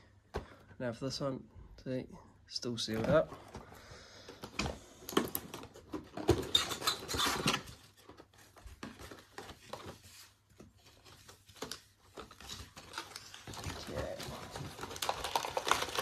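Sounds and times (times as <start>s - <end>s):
wrapper crackles and clicks: 10.9s - 16.0s
foil pack crinkling and tearing: 11.5s - 16.0s.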